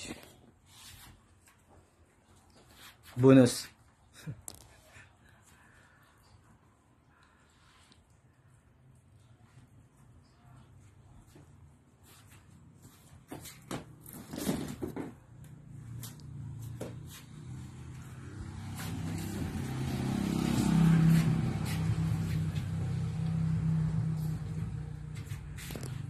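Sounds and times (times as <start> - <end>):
low motor hum: 15.5 - 26.0.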